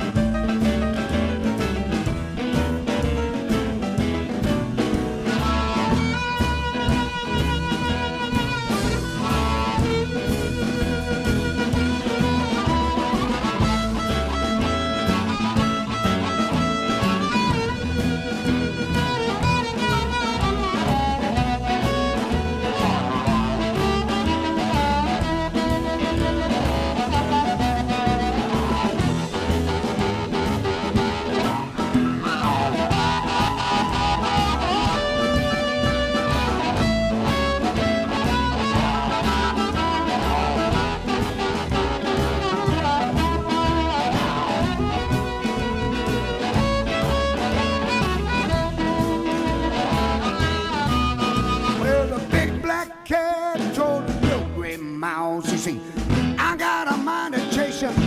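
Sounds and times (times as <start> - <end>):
blues band playing: 0.0 - 58.0.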